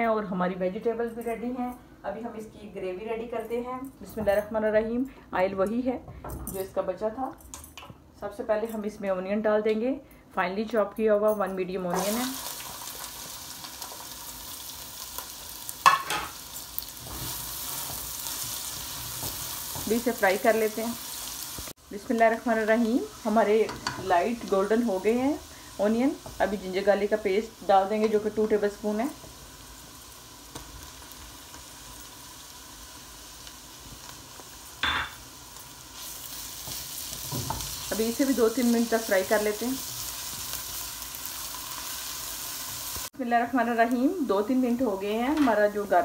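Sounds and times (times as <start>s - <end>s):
onion sizzling in oil: 11.9s - 46.0s.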